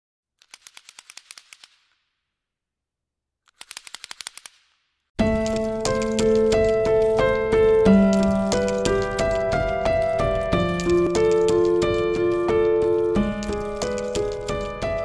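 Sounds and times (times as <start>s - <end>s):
sharp evenly spaced clicks: 0.4s - 2.0s, 3.5s - 15.0s
background music: 5.2s - 15.0s.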